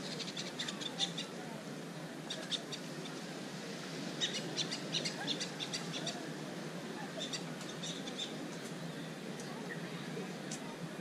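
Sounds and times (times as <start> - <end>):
low background wash: 0.0 - 11.0
birds chirping: 4.2 - 6.2, 7.1 - 10.5.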